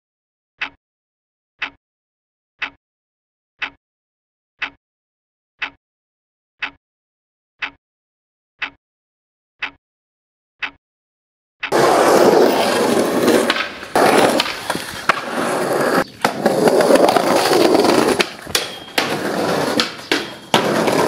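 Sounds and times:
skateboard clacks: 11.7s - 21.0s
skateboard wheels rolling on concrete: 11.7s - 21.0s.

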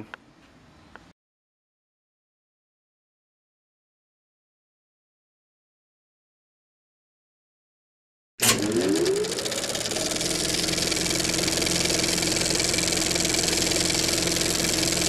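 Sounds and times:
motorcycle engine running: 8.5s - 15.0s.

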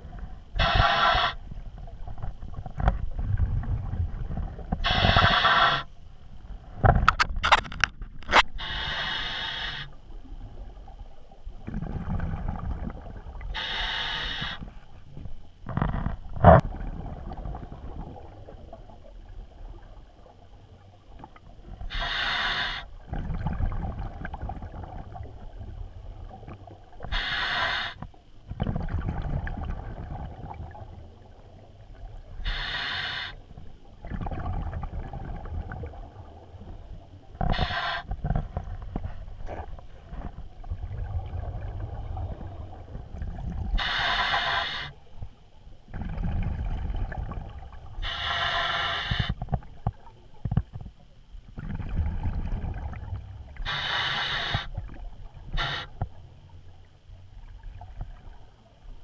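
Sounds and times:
regulator hissing inhale: 0.6s - 1.5s, 4.8s - 5.9s, 8.6s - 10.0s, 13.6s - 14.8s, 21.9s - 22.9s, 27.0s - 28.0s, 32.4s - 33.5s, 37.5s - 38.2s, 43.7s - 45.0s, 48.0s - 49.4s, 53.6s - 54.8s, 55.5s - 56.0s
bubbling exhale underwater: 34.0s - 36.4s, 45.9s - 49.3s.

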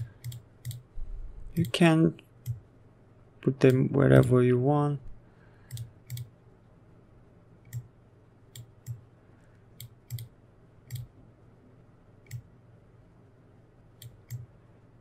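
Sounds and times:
computer mouse clicking: 0.0s - 0.9s, 1.5s - 1.8s, 5.7s - 6.3s, 7.6s - 7.9s, 8.5s - 9.0s, 9.8s - 11.1s, 12.2s - 12.5s, 14.0s - 14.5s.

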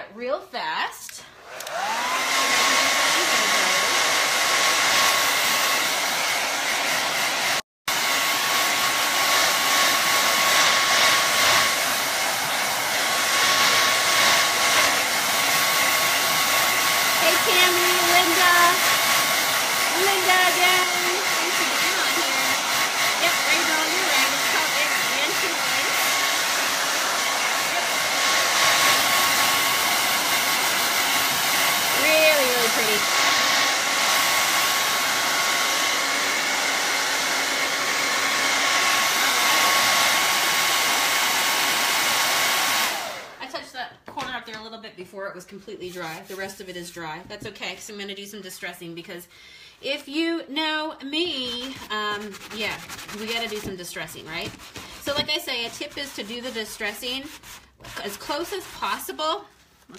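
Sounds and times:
hot-air blower whining: 1.4s - 43.5s.

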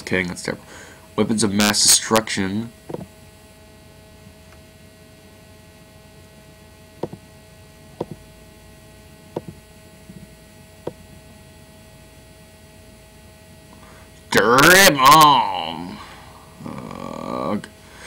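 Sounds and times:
electrical mains hum: 0.0s - 18.0s
computer mouse clicks: 2.9s - 3.1s, 8.0s - 8.2s.

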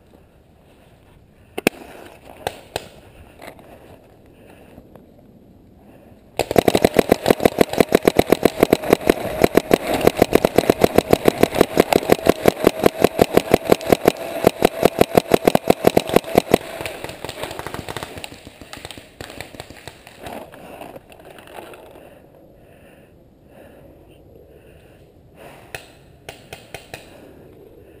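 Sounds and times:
steady whine: 0.0s - 19.3s
paintball marker firing rapidly: 6.4s - 20.4s.

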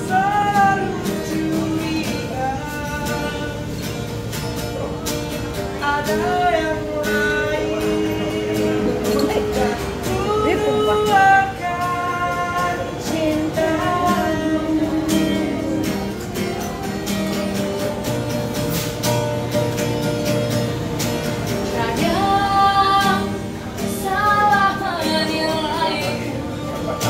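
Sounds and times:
strummed guitar: 0.0s - 27.0s
woman singing: 5.8s - 15.8s, 21.7s - 27.0s.

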